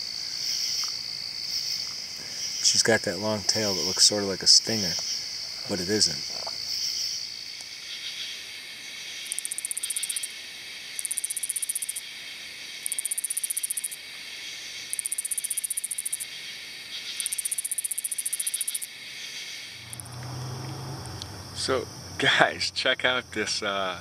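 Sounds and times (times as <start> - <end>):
crickets and insects chorus: 0.0 - 24.0
katydid pulsed buzzes: 17.1 - 18.9, 19.7 - 22.4.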